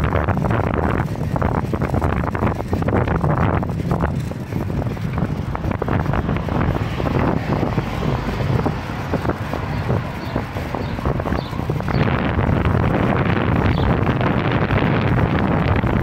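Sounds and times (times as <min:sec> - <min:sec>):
wind buffeting microphone: 0:00.0 - 0:16.0
small rattling clicks: 0:00.5 - 0:06.2.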